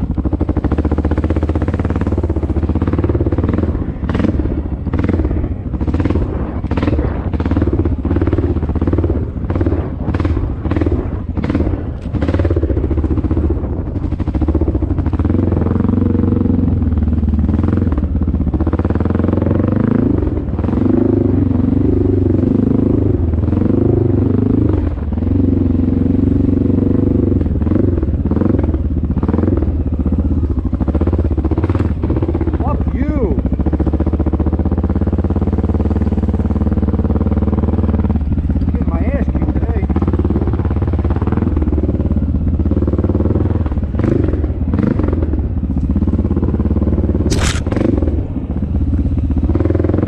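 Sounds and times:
dirt bike engine revving: 47.2 - 48.4.

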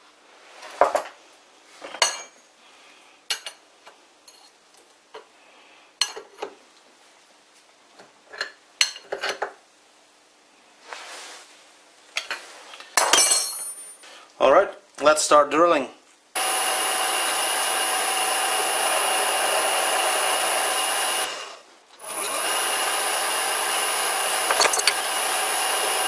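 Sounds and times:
metal tools clinking: 13.0 - 14.1, 24.5 - 25.0.

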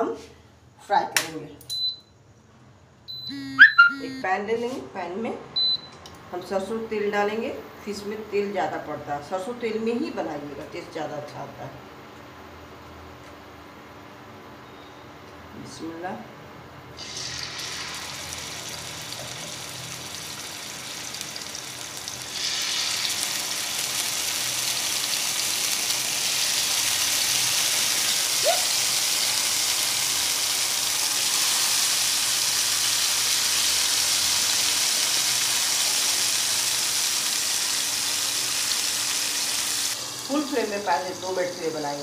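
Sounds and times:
fish sizzling in hot oil: 17.0 - 42.0.

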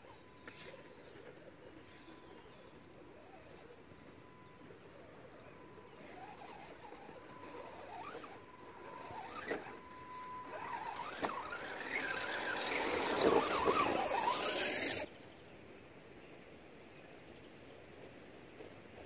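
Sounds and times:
electric motor whining: 0.0 - 15.1.

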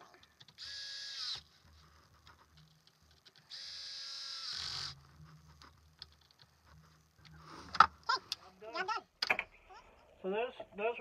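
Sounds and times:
electric screwdriver running: 0.6 - 1.5, 3.5 - 5.0.

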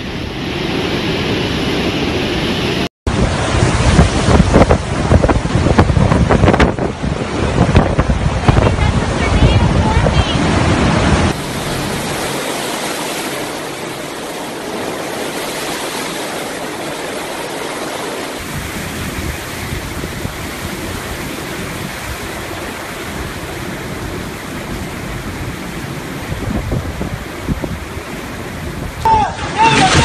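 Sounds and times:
hurricane wind: 0.0 - 30.0
surf: 0.0 - 30.0
wind buffeting microphone: 3.1 - 12.3, 18.4 - 29.1
driving rain: 3.1 - 30.0.

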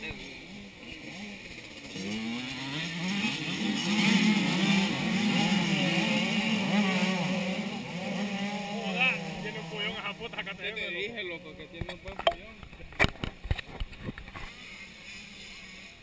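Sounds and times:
dirt bikes revving: 0.0 - 16.0.

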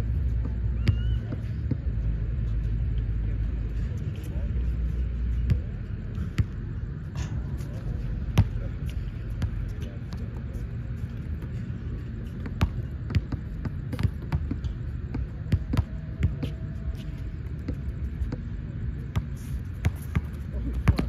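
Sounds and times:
basketball bouncing on court: 0.3 - 2.0, 8.3 - 10.5, 12.3 - 18.5, 19.1 - 21.0.

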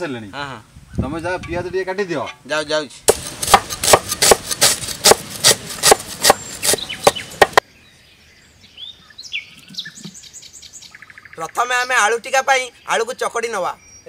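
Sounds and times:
knife chopping onions on board: 3.1 - 7.6
faint bird chirps: 6.4 - 14.0.

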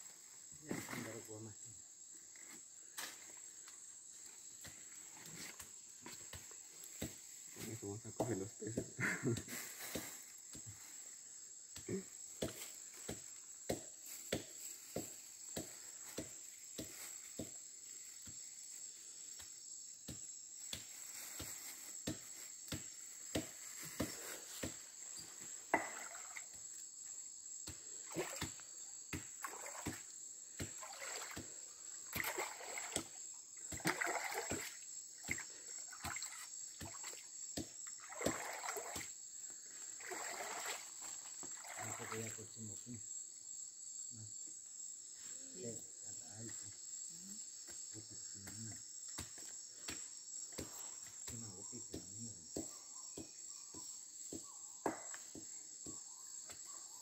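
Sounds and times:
high insect drone: 0.0 - 57.0
water splashing in a pool: 25.8 - 26.5, 28.1 - 28.6, 29.4 - 37.3, 37.9 - 39.2, 40.0 - 42.4.

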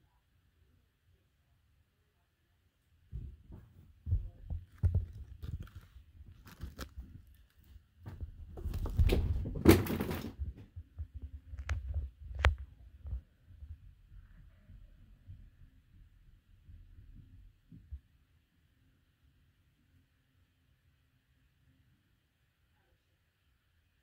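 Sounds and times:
muffled thumps and rustling: 3.1 - 14.5, 16.6 - 18.1.

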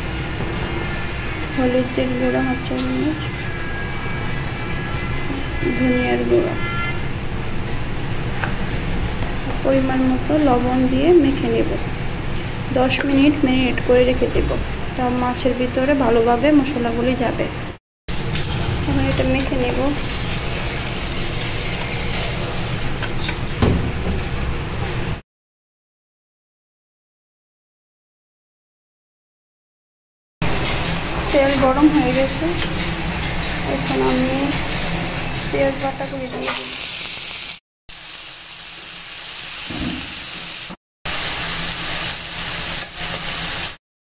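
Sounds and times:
food sizzling in hot oil: 18.1 - 23.4, 30.6 - 43.8
hands mixing fish in metal bowl: 33.2 - 37.1.

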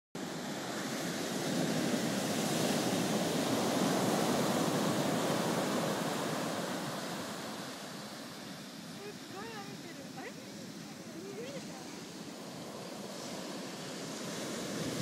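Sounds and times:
ocean surf breaking on beach: 0.2 - 15.0.

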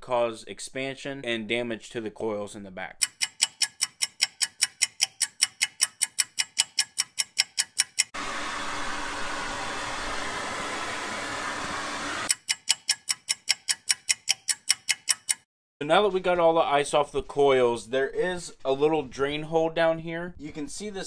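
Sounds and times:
regular ticking: 3.0 - 8.2, 12.3 - 15.5
hair dryer blowing: 8.2 - 12.3.

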